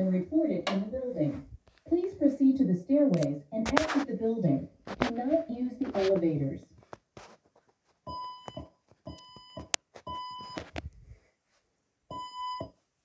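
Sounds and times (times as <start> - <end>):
evacuation alarm beeps: 8.1 - 10.6, 12.1 - 12.8.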